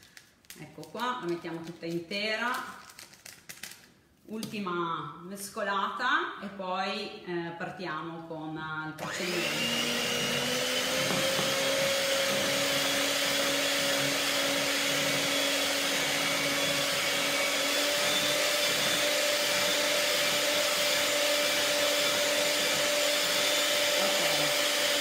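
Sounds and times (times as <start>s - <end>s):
electric hand mixer whirring: 9.0s - 25.0s.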